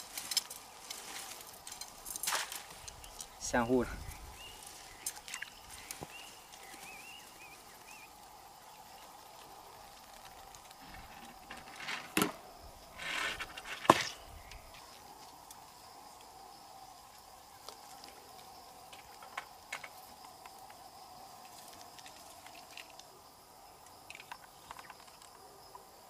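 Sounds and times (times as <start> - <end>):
fishing tackle rustling and knocking: 0.0 - 3.4.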